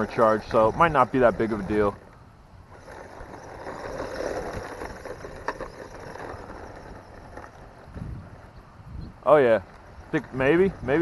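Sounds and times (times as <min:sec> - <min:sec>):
toy truck electric motor running: 0:00.0 - 0:08.5.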